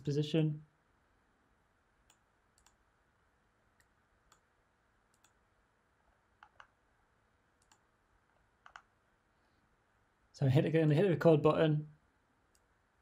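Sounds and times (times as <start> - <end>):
computer mouse and keyboard clicks: 2.0 - 2.8, 5.1 - 5.4, 6.4 - 6.8, 7.6 - 8.9.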